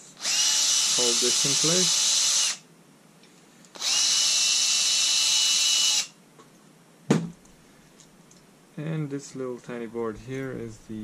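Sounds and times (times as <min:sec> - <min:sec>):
cordless drill motor whine: 0:00.2 - 0:02.6, 0:03.8 - 0:06.2.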